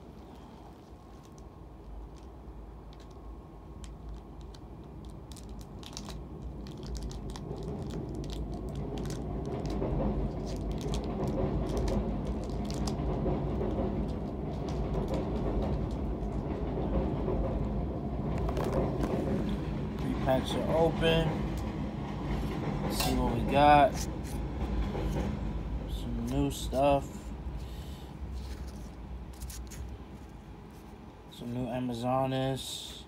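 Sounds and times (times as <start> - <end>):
foil wrappers crinkling and tearing: 3.8 - 9.8, 10.4 - 13.0.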